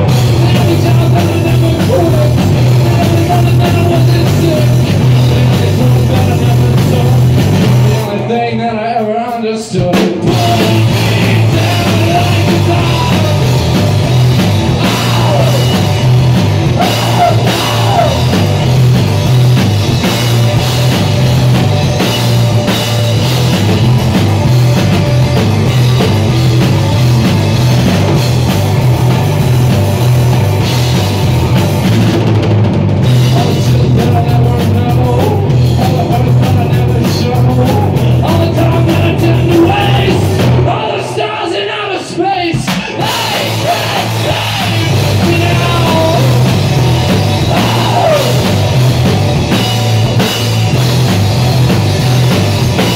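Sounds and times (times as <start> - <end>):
electric bass: 0.0 - 8.9, 9.8 - 41.2, 42.9 - 52.9
electric guitar: 0.0 - 8.9, 9.8 - 41.4, 42.6 - 52.9
drum kit: 0.0 - 52.9
person singing into microphone: 0.3 - 13.5, 14.8 - 15.8, 33.3 - 46.6, 47.4 - 48.5.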